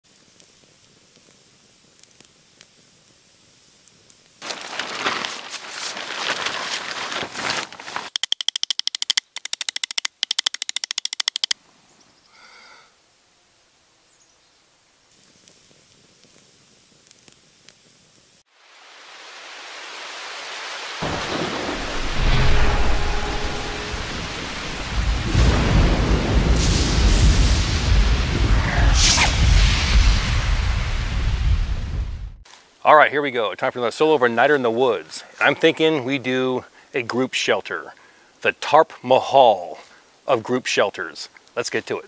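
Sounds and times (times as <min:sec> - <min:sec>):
rain hiss: 0:00.0 - 0:06.5, 0:12.3 - 0:42.0
rustling noise: 0:04.4 - 0:08.3
sharp clicks: 0:08.1 - 0:11.6
deep thunder rumble: 0:21.0 - 0:32.4.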